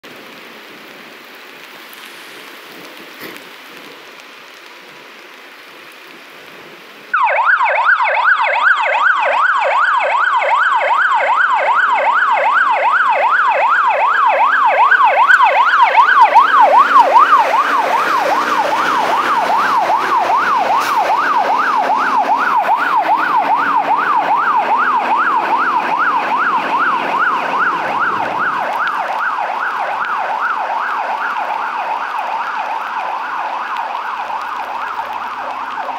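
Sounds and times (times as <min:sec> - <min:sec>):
steady hiss: 0:00.2 - 0:07.1
fire engine siren yelping: 0:07.1 - 0:35.9
truck engine: 0:13.7 - 0:32.0.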